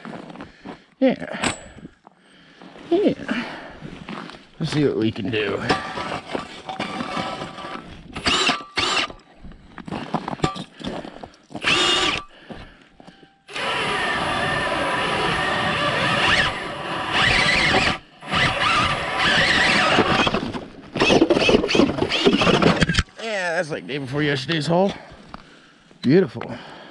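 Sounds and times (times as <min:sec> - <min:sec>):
ice auger drilling through ice: 0:05.4 - 0:09.3, 0:11.6 - 0:12.3, 0:13.5 - 0:23.1.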